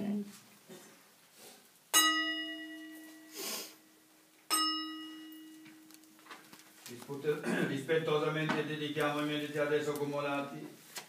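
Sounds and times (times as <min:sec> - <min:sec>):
bowl bell ringing: 0:02.0 - 0:03.4, 0:04.5 - 0:05.9.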